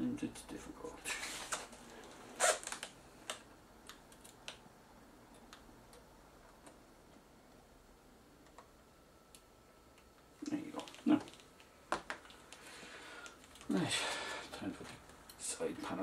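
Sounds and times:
small plastic parts clicking: 10.8 - 12.6.

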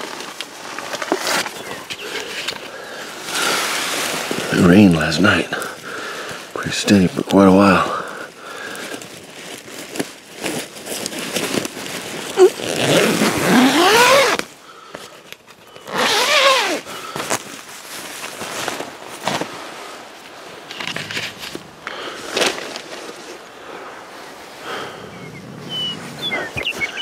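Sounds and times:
tent zipper pulled: 0.0 - 4.7, 9.4 - 14.5, 15.8 - 17.6, 20.7 - 23.4
nylon fabric rustling: 0.0 - 6.5, 8.6 - 14.5, 15.9 - 24.9.

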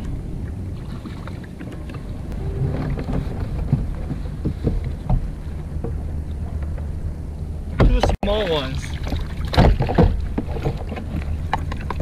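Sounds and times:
wind: 0.0 - 12.0
water rushing: 2.2 - 5.6.

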